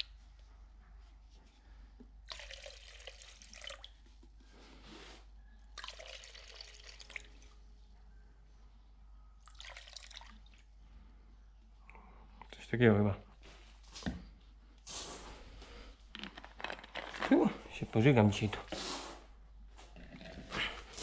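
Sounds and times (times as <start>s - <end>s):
liquid trickling into bucket: 2.2s - 4.1s, 5.8s - 7.6s, 9.4s - 10.7s.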